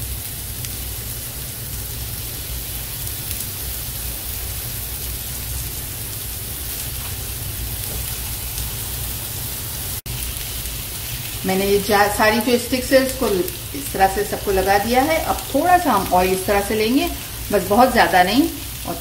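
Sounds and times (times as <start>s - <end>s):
kebabs sizzling in a pan: 0.0s - 19.0s.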